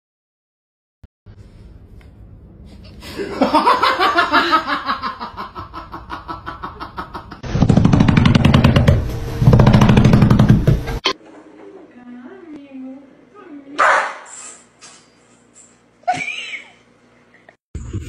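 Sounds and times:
person laughing: 3.0s - 7.4s, 16.0s - 16.9s.

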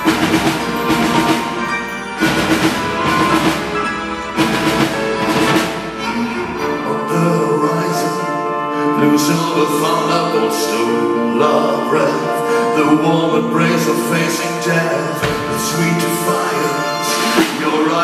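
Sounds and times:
drums: 0.0s - 7.6s, 15.1s - 18.0s
band and orchestra playing: 0.0s - 18.0s.

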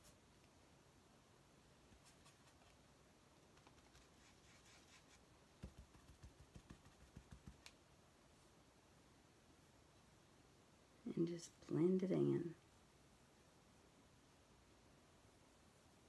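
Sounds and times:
paintbrush scratching: 1.9s - 2.8s, 3.6s - 7.7s.

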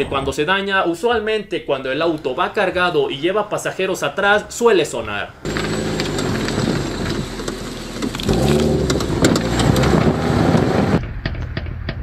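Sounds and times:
tyre and road noise: 4.1s - 12.0s
car engine: 5.4s - 12.0s
suspension knocks: 5.5s - 12.0s.

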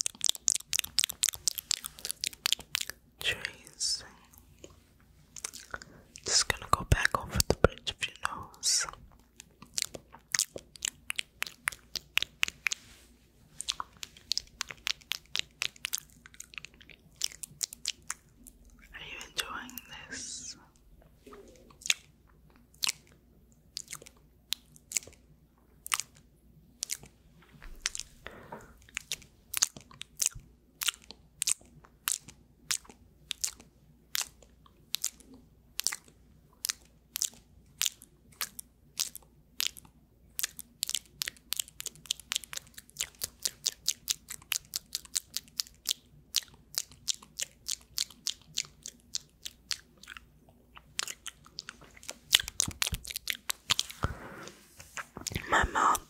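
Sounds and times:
wet mouth clicks: 0.0s - 4.8s, 5.4s - 13.0s, 13.6s - 25.2s, 25.8s - 26.2s, 26.8s - 54.2s, 54.8s - 56.0s
lip smacks: 0.0s - 13.0s, 13.6s - 18.7s, 19.7s - 25.2s, 25.8s - 56.0s.

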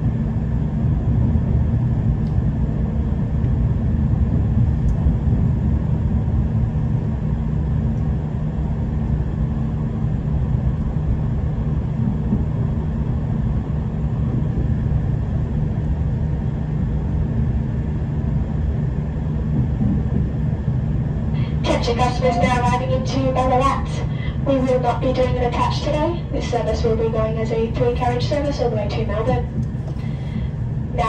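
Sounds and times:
train engine drone: 0.0s - 31.0s
train wheels on track: 19.0s - 21.1s.

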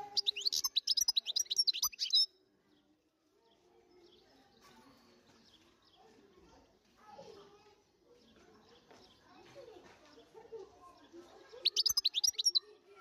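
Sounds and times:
goldfinch twittering song: 0.0s - 2.3s, 11.6s - 12.7s
faint background noise: 0.0s - 13.0s.

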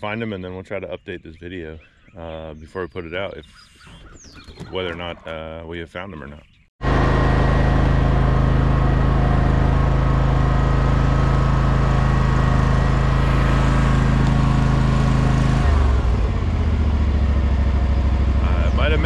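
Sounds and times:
ride-on mower engine: 6.8s - 19.0s.

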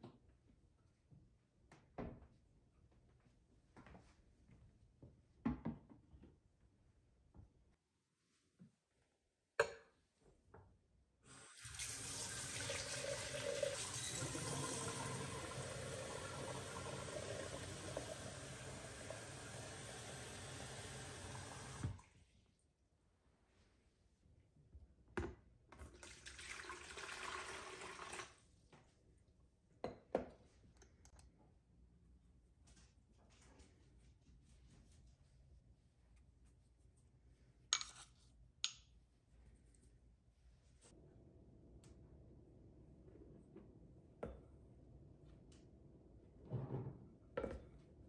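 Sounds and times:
faucet water splashing into jug: 11.5s - 22.0s, 25.8s - 28.4s.

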